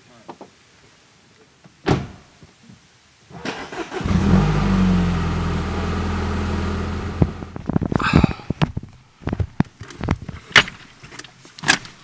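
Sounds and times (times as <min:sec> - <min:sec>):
car engine starting and idling: 0:03.3 - 0:08.2.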